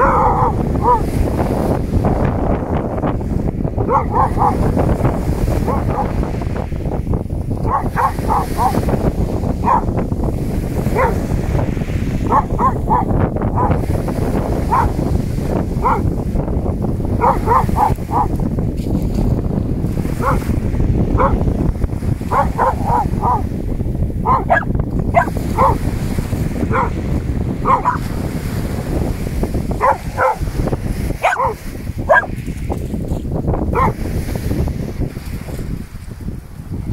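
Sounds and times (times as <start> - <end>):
dog barking: 0.0 - 1.4, 3.8 - 6.4, 7.6 - 10.0, 10.8 - 16.2, 17.1 - 18.4, 20.1 - 21.5, 22.2 - 23.5, 24.2 - 26.0, 26.6 - 28.3, 29.7 - 32.5, 33.7 - 34.1.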